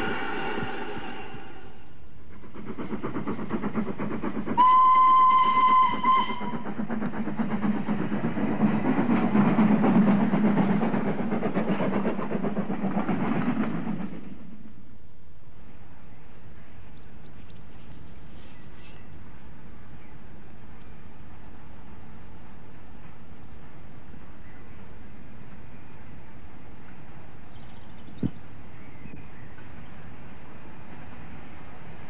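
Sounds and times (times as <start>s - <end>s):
steam locomotive chuffing: 0.0s - 14.8s
train wheel noise: 0.0s - 15.0s
steam whistle: 4.6s - 6.6s.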